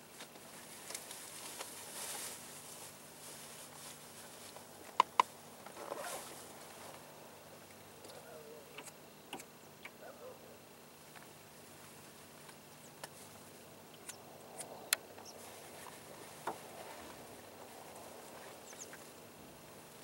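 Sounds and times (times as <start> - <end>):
wind hiss: 10.9 - 20.0
sharp clicks: 13.9 - 15.3.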